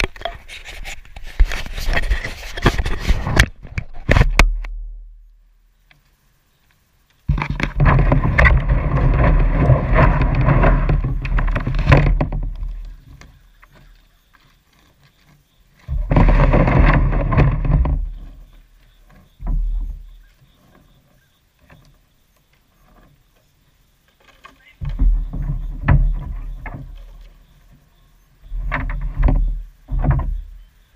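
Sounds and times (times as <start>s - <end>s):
water sloshing and splashing: 7.3s - 14.0s, 14.7s - 21.0s.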